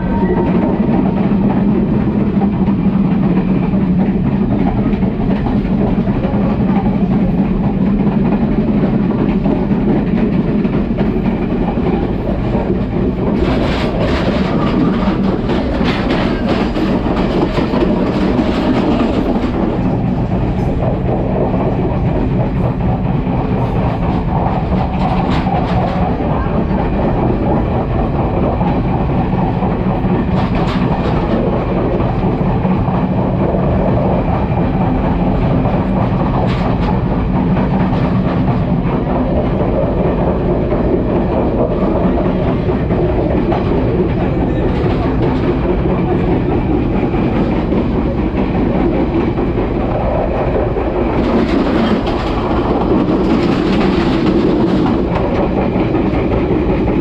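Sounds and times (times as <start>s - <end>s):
clickety-clack of rail joints: 0.0s - 57.0s
train wheels rumbling on rails: 0.0s - 57.0s.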